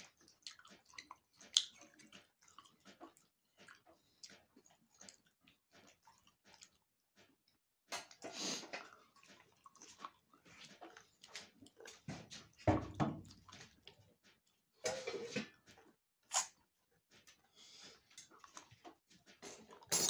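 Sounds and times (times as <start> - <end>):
slurping: 0.0 - 6.9, 8.0 - 12.2, 16.3 - 16.6, 17.6 - 20.0
wet chewing and lip smacks: 0.0 - 14.7, 15.7 - 20.0.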